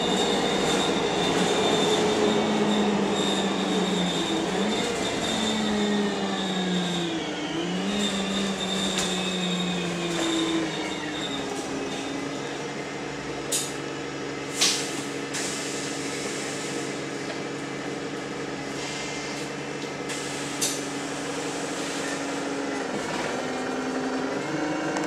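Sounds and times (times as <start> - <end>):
bus engine humming: 0.0 - 25.0.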